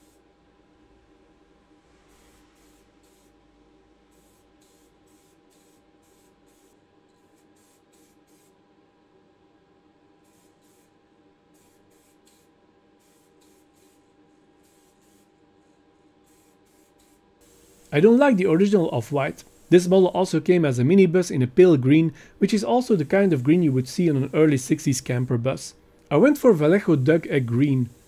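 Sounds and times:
steady low hum: 0:00.2 - 0:28.0
aerosol can spraying: 0:02.1 - 0:03.4, 0:04.1 - 0:08.6, 0:10.2 - 0:15.4, 0:16.2 - 0:20.2, 0:22.5 - 0:25.3, 0:26.5 - 0:28.0.

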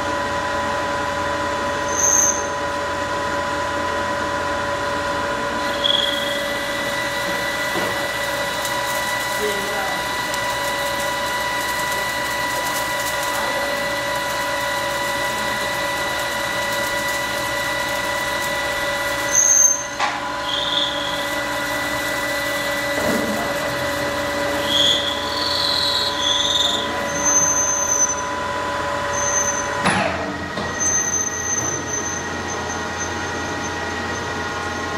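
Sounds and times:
lathe gear whine: 0:00.0 - 0:34.9
cutting tool squealing: 0:05.6 - 0:28.3, 0:29.1 - 0:29.7, 0:30.6 - 0:34.3.

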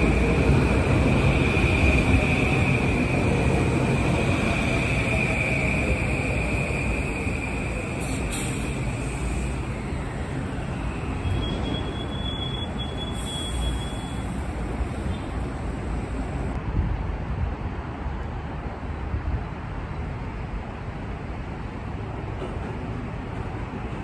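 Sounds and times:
train approaching: 0:00.0 - 0:16.6
train wheels rumbling on rail: 0:00.0 - 0:24.0.

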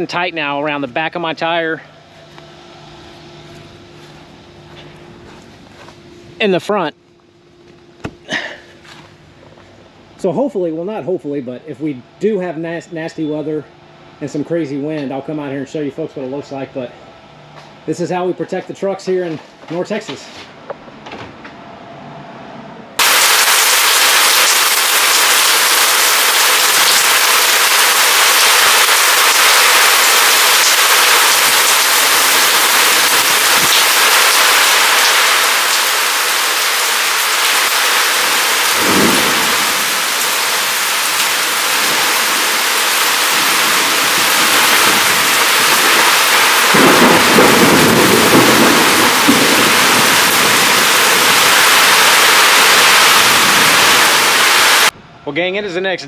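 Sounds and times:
heavy rain and wind hiss: 0:23.0 - 0:55.0
thunder rumbling: 0:23.0 - 0:55.2.

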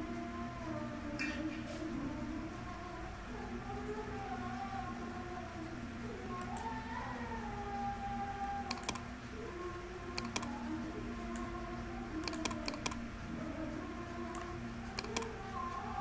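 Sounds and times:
mouse and keyboard clicks: 0:08.7 - 0:09.0, 0:10.2 - 0:10.5, 0:12.2 - 0:13.0, 0:14.3 - 0:15.3.

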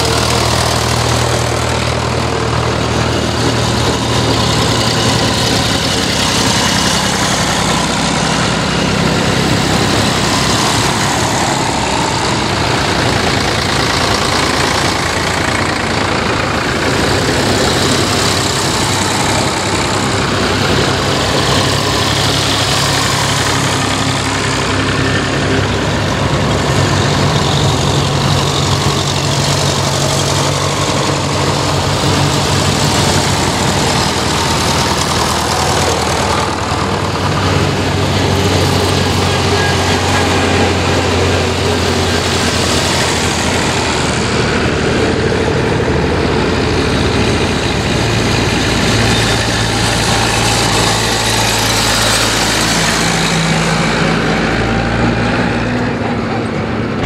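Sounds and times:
tractor engines passing: 0:00.0 - 0:57.0.

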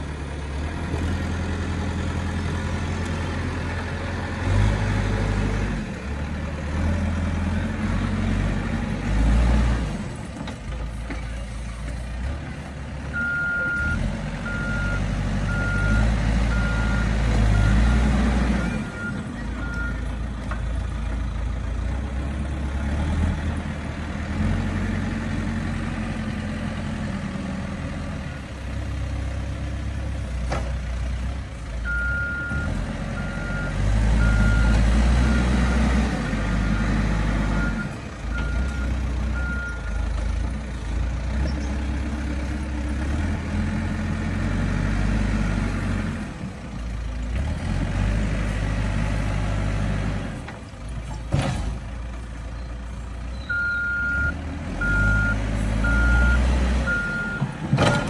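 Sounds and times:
diesel engine under load: 0:00.0 - 0:58.0
reverse alarm beeping: 0:13.2 - 0:17.8, 0:53.4 - 0:57.5.

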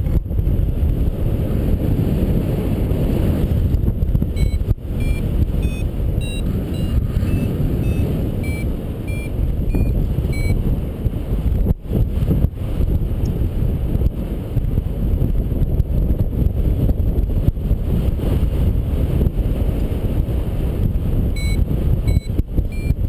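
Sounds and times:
wind buffeting microphone: 0:00.0 - 0:23.0
variometer beeping: 0:04.3 - 0:10.6, 0:21.3 - 0:23.0.

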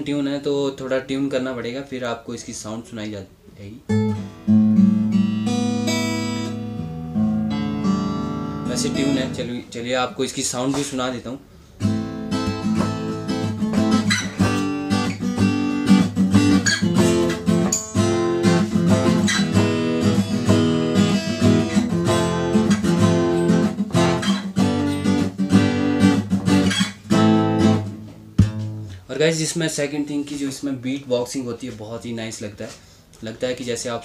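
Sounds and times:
acoustic guitar chords: 0:03.8 - 0:09.8, 0:10.6 - 0:29.1.

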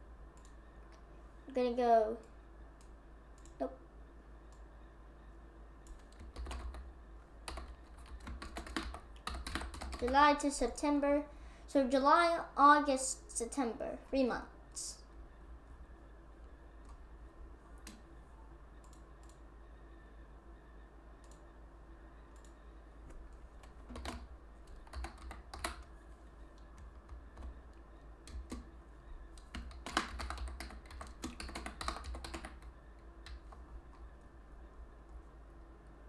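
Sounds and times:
low steady hum: 0:00.0 - 0:36.0
typing on computer keyboard: 0:05.8 - 0:10.2, 0:23.6 - 0:25.9, 0:26.6 - 0:27.7, 0:28.3 - 0:28.7, 0:29.4 - 0:34.0.

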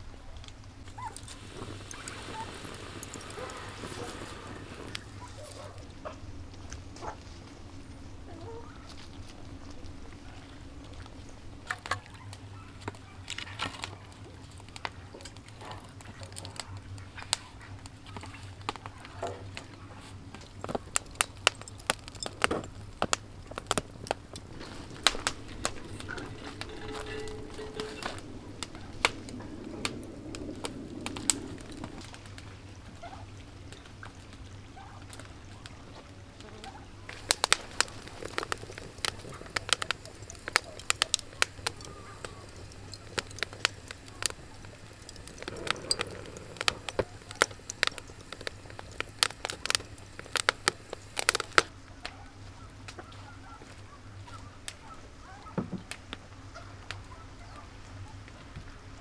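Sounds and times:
wood fire crackling: 0:00.0 - 0:59.0
sharp fire pops: 0:00.4 - 0:06.0, 0:10.8 - 0:33.0, 0:36.7 - 0:51.7.

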